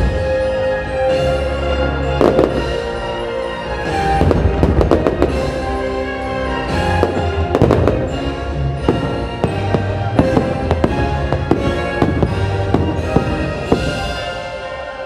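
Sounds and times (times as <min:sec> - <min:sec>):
orchestral music: 0:00.0 - 0:15.0
fireworks bangs: 0:02.2 - 0:03.0, 0:04.1 - 0:05.8, 0:06.6 - 0:14.6.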